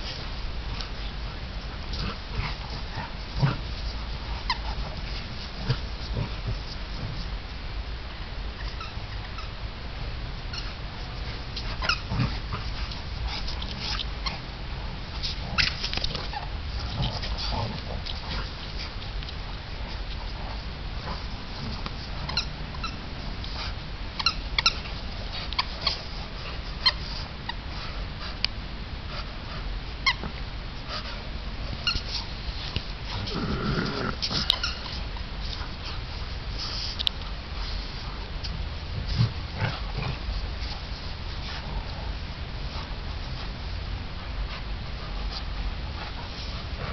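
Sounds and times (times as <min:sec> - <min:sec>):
dogs play-fighting: 0:00.0 - 0:46.9
dog growling: 0:01.8 - 0:07.2, 0:11.2 - 0:14.4, 0:15.1 - 0:19.0, 0:33.0 - 0:35.0, 0:38.9 - 0:40.5, 0:45.9 - 0:46.9.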